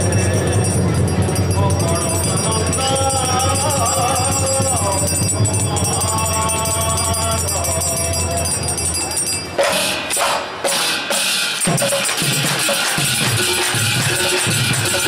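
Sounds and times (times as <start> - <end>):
man singing a chant: 0.0 - 9.0
metal hand percussion jingling: 0.0 - 10.5, 11.5 - 15.0.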